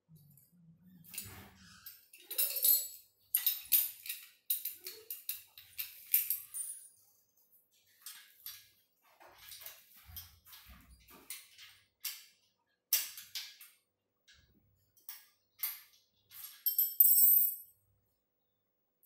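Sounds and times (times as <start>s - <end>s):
metal bolts clinking and rattling: 1.0s - 7.0s, 7.7s - 17.6s.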